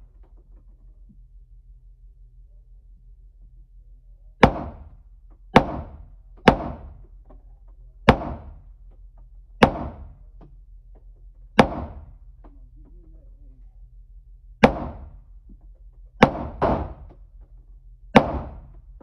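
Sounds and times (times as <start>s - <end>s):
gunshots echoing indoors: 4.4s - 7.2s, 8.0s - 8.7s, 9.5s - 10.4s, 11.5s - 12.4s, 14.6s - 15.4s, 16.2s - 17.2s, 18.1s - 19.0s.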